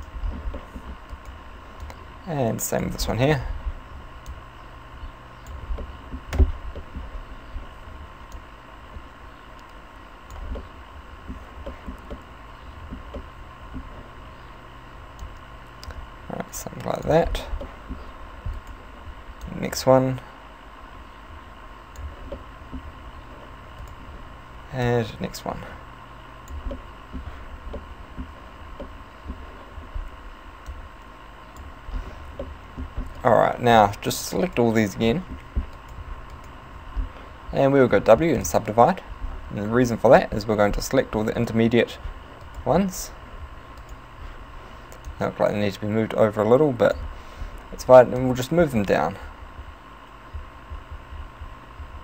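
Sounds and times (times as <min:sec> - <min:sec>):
computer mouse clicks: 0:00.0 - 0:02.0, 0:09.5 - 0:10.7, 0:11.3 - 0:14.5, 0:15.1 - 0:18.8, 0:23.7 - 0:24.0, 0:26.4 - 0:29.5, 0:43.7 - 0:44.0, 0:44.9 - 0:45.2
electrical hum and hiss: 0:00.0 - 0:52.0.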